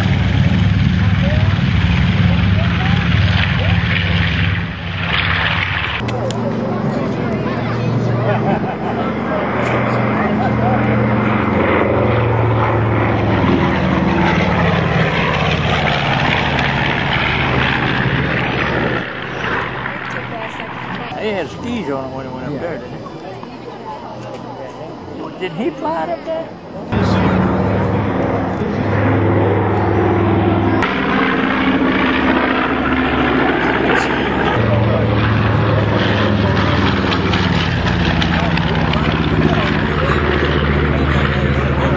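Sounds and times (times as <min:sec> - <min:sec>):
propeller plane droning overhead: 0:00.0 - 0:41.9.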